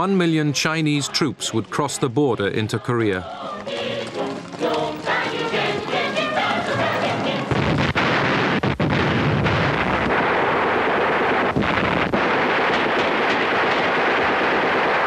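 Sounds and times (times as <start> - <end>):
artillery fire: 7.5 - 15.0
gunfire: 7.5 - 15.0.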